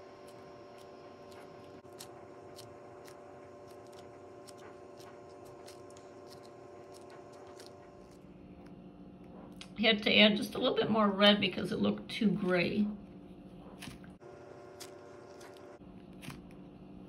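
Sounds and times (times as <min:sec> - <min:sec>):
foam clay crackling when squeezed: 0:00.0 - 0:08.3
steady low hum: 0:00.0 - 0:17.0.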